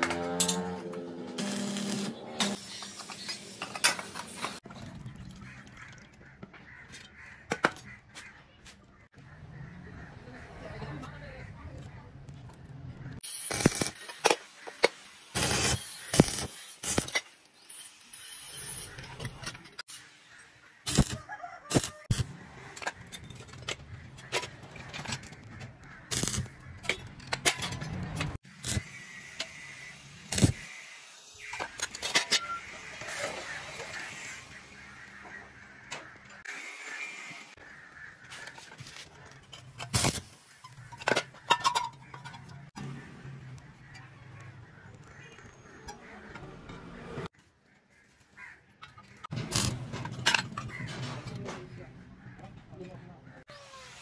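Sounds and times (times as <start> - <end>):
arc welding crackling hiss: 1.4 - 3.6, 13.2 - 18.9, 28.5 - 31.6.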